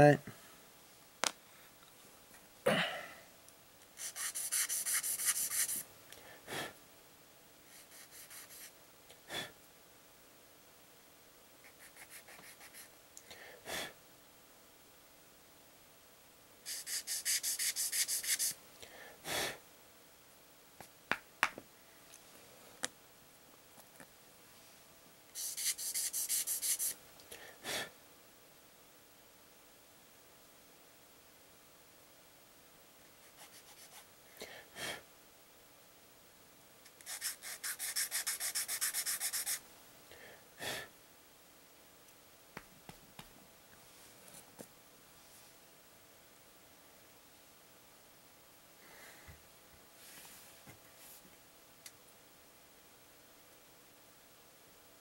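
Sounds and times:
plastic sanding strokes: 4.0s - 5.8s, 16.7s - 18.6s, 25.4s - 27.0s, 37.0s - 39.6s.

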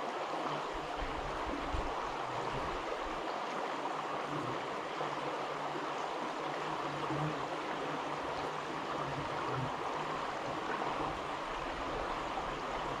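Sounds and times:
creek water running over rocks: 0.0s - 13.0s.

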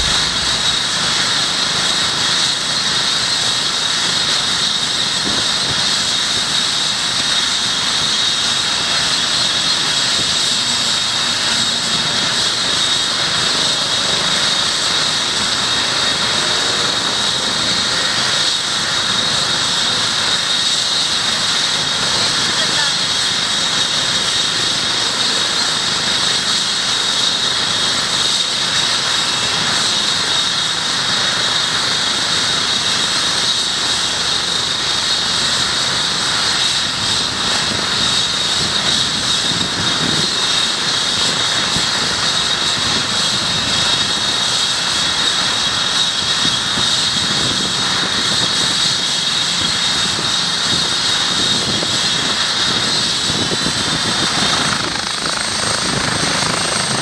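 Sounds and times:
helicopter rotor turning: 0.0s - 57.0s
turbine engines whining: 0.0s - 57.0s.

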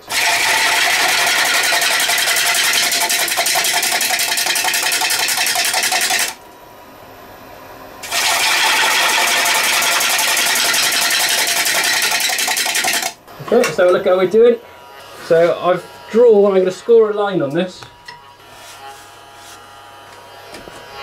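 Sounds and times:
wood lathe cutting hiss: 0.0s - 6.3s, 8.0s - 13.1s
tool ticking on spinning wood: 0.2s - 6.4s, 8.5s - 13.2s.

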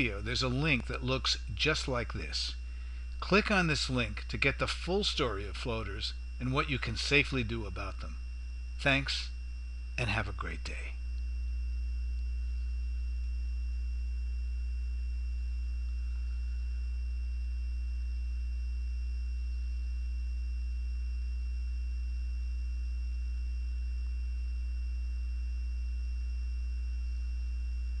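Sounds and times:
faint high-pitched whine: 0.0s - 28.0s
low electrical hum: 0.0s - 28.0s.

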